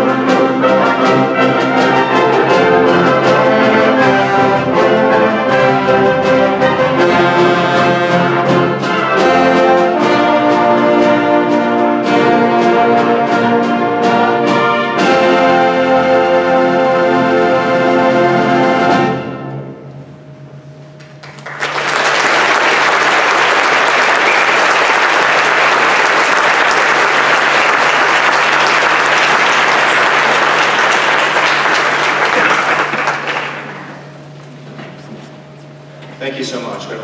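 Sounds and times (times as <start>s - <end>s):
concert band chord: 0.0s - 20.0s
audience applauding: 21.0s - 34.4s.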